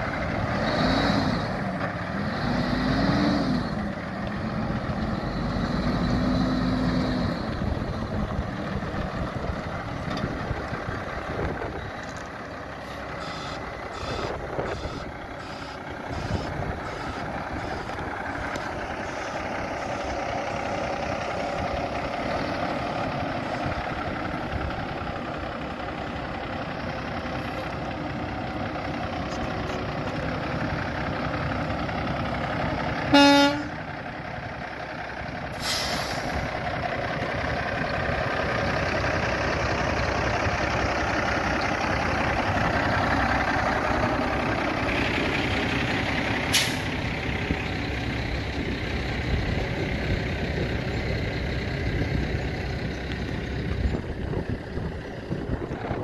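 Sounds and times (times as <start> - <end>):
diesel truck engine idling: 0.0 - 56.0
truck horn toot: 13.2 - 17.9, 33.1 - 33.8
air brake hiss: 35.5 - 36.4, 46.5 - 47.0.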